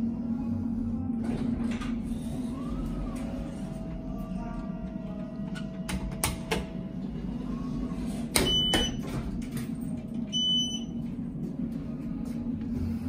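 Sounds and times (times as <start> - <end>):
steady low hum: 0.0 - 13.0
elevator button beeps: 8.4 - 9.1, 10.3 - 11.0.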